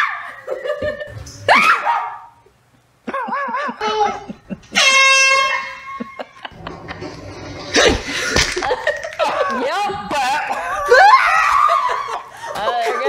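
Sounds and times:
air horn blast: 4.7 - 6.0.

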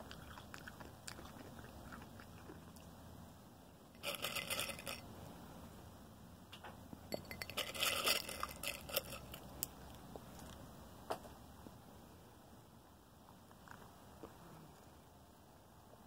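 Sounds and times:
crunching and rustling popcorn: 0.0 - 2.9, 4.0 - 5.2, 7.4 - 10.6.

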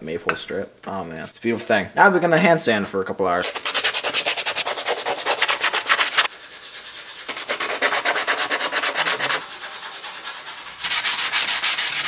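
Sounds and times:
sandpaper rubbing on wood: 3.4 - 12.0.

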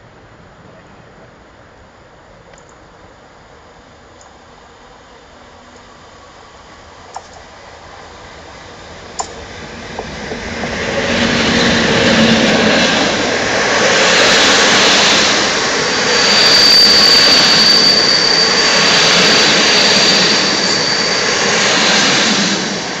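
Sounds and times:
train wheels rushing on rails: 0.0 - 23.0
thin high-pitched whine: 15.4 - 22.2.

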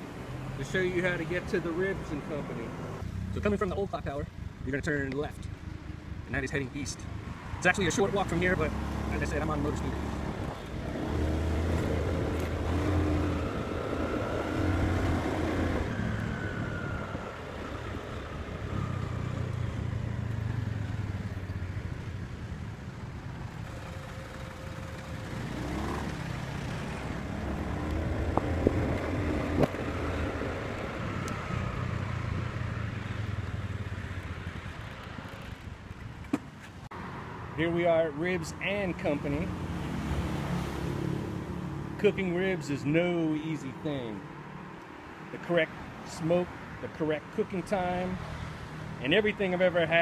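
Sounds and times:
scooter engine revving: 8.0 - 22.2, 23.2 - 35.8.

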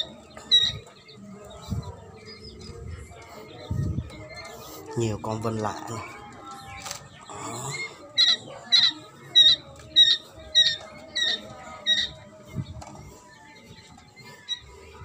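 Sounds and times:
young quail calling: 0.0 - 1.2, 1.9 - 12.7, 13.4 - 15.0.

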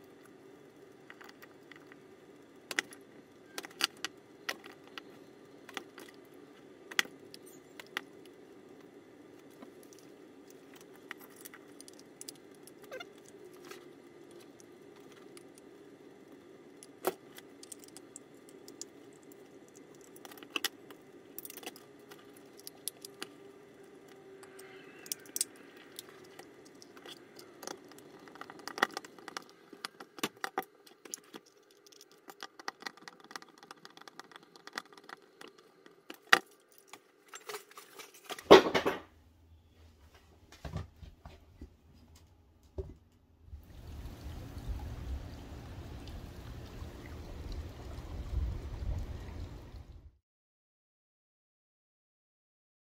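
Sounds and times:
faint steady hum: 0.0 - 50.2
plastic parts clicking and rattling: 0.9 - 8.4, 9.4 - 15.7, 16.8 - 39.0
plastic parts clattering: 25.1 - 39.1.

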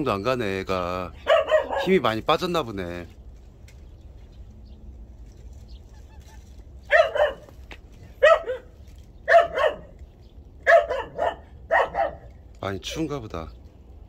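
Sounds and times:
dog barking: 1.2 - 2.1, 6.9 - 7.6, 8.2 - 10.0, 10.6 - 12.3.

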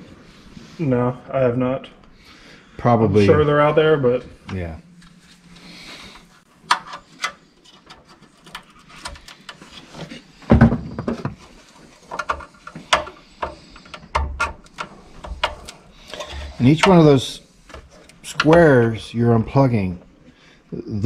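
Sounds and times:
wiring connectors clicking: 12.1 - 18.8.

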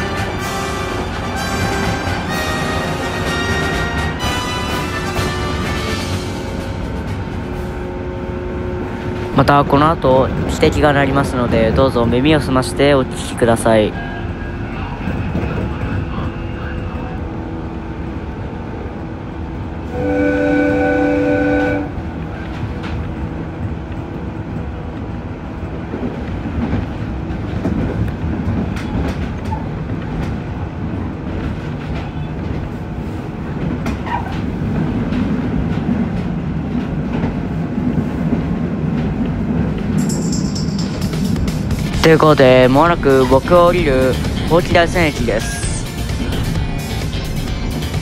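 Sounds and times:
train horn blast: 0.0 - 6.6, 19.8 - 22.2
rail clatter: 0.0 - 19.9, 20.8 - 48.0
train running rumble: 0.0 - 48.0.

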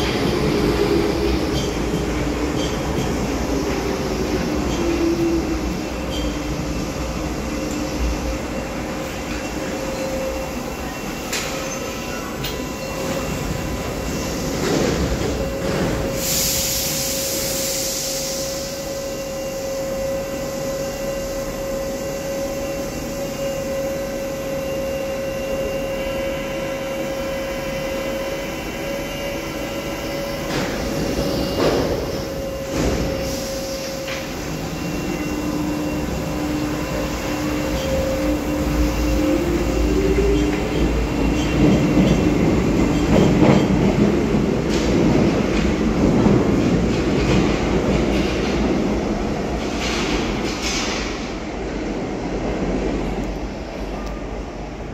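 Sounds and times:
train electrical hum: 0.0 - 54.9
train motor whine: 3.7 - 43.0
sharp air hiss: 16.1 - 19.0.

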